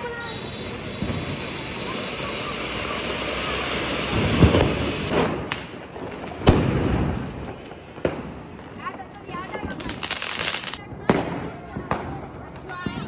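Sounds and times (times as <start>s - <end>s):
firework fountain hissing: 0.0s - 5.8s, 9.5s - 10.8s
firecracker bangs: 3.8s - 8.5s, 9.6s - 12.2s.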